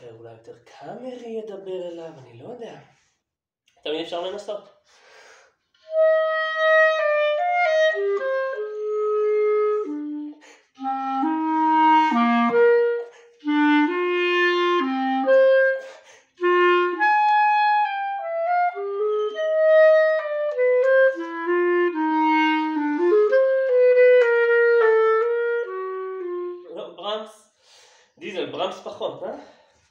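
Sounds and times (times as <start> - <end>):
solo clarinet melody: 5.8 - 27.3.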